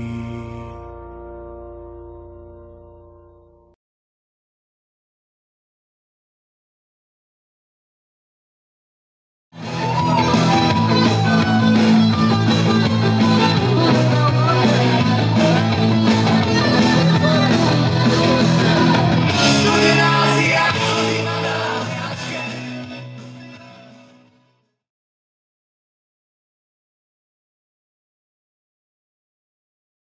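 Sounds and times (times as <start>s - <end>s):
song with singing over beat: 9.6s - 24.4s.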